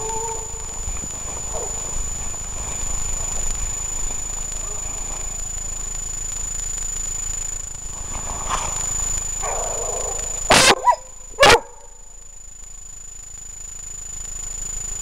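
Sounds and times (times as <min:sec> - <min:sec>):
thin high whine: 0:00.0 - 0:15.0
dog barking faintly: 0:09.4 - 0:12.0.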